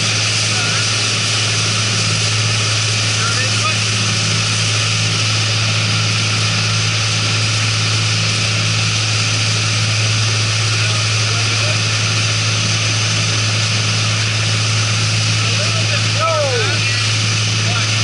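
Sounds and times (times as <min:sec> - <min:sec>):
boat engine drone: 0:00.0 - 0:18.0
rush of wind and water: 0:00.0 - 0:18.0.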